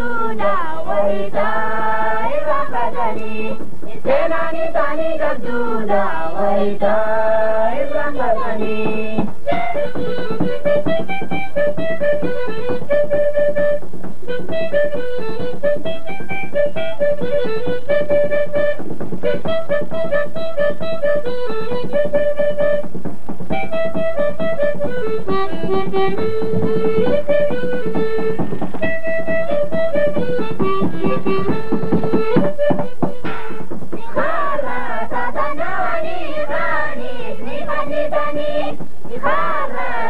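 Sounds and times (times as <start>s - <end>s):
voices singing: 0.0s - 9.6s, 34.0s - 40.0s
instrumental melody: 0.0s - 40.0s.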